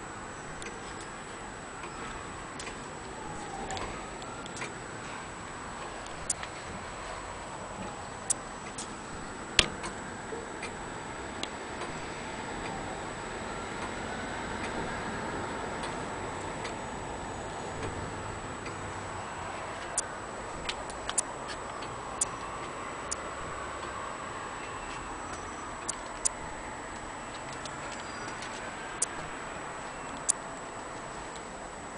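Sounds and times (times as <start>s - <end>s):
clock ticking: 6.0s - 6.5s, 29.0s - 29.3s.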